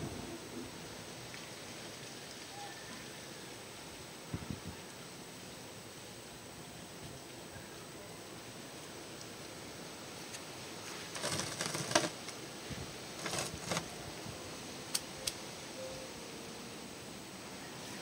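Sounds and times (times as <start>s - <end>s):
steady hiss: 0.0s - 18.0s
crackling rustle: 8.3s - 18.0s.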